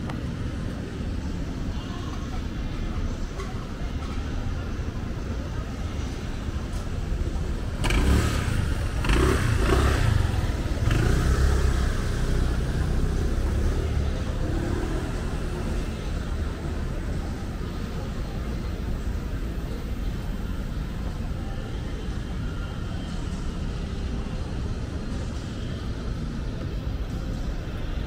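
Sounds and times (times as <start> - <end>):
traffic rumble: 0.0 - 28.0
vehicle passing and accelerating: 7.8 - 17.0.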